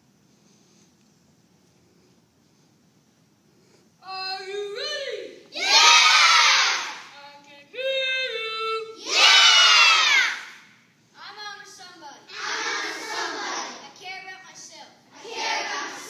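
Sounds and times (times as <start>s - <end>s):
children shouting in unison: 5.6s - 7.1s, 9.0s - 10.6s, 12.3s - 13.8s.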